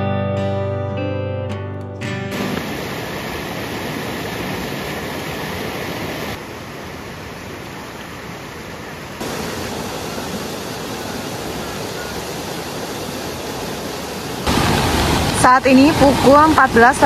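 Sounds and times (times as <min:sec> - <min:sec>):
steady rushing noise: 0:02.3 - 0:17.0.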